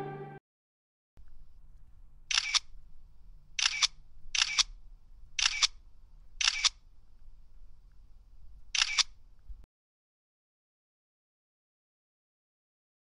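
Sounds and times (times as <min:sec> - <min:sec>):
faint low hum: 0:01.2 - 0:09.6
camera shutter clicks: 0:02.3 - 0:02.7, 0:03.6 - 0:04.8, 0:05.4 - 0:05.8, 0:06.4 - 0:06.8, 0:08.7 - 0:09.2.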